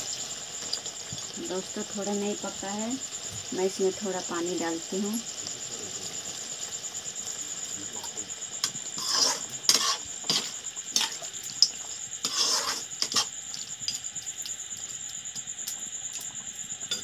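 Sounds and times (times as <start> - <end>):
steady high-pitched whine: 0.0 - 17.0
metal ladle scraping metal pot: 9.0 - 11.3, 12.2 - 13.3.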